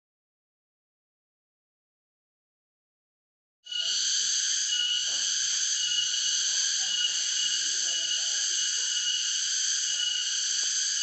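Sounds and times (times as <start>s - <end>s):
insects chorus: 3.7s - 11.0s.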